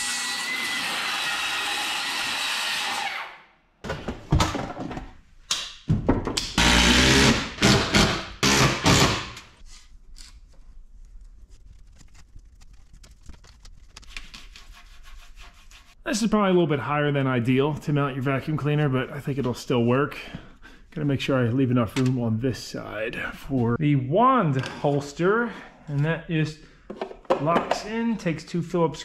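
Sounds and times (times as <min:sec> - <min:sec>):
circular saw cutting plywood: 0:00.0 - 0:03.4, 0:06.6 - 0:09.3
drill bursts: 0:06.6 - 0:09.4.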